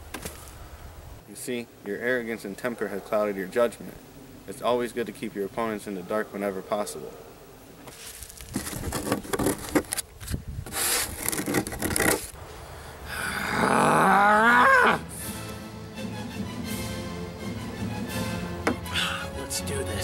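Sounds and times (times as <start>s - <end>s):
cards scraping on wooden table: 7.9s - 10.0s, 10.7s - 12.4s.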